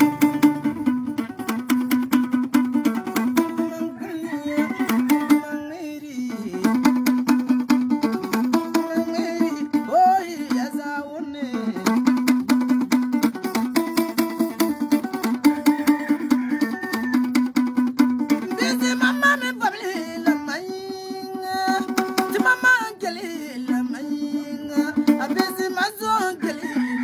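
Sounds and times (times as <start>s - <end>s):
two-string lute plucked riff: 0.0s - 27.0s
man singing gliding phrases: 3.1s - 7.2s, 8.2s - 12.2s, 18.3s - 26.8s.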